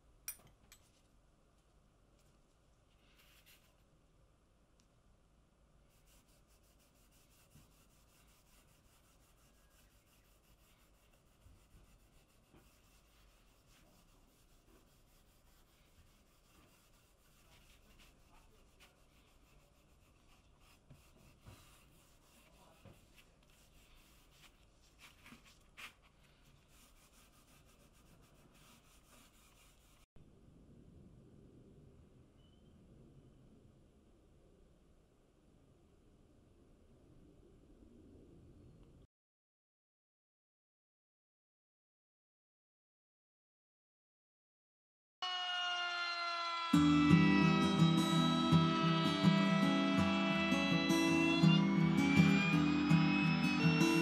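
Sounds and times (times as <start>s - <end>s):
cloth pad rubbing on wood: 5.9s - 30.1s
soft scratches and taps: 9.3s - 30.0s.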